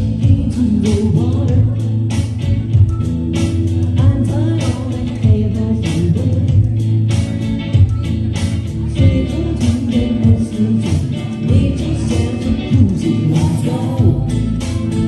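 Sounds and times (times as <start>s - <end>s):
woman singing: 0.0s - 2.4s, 3.8s - 6.8s, 8.9s - 14.8s.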